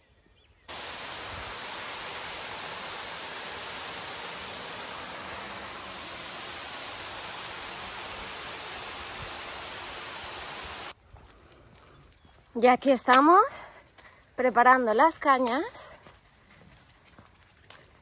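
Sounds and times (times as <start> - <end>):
river water rushing: 0.7 - 10.9.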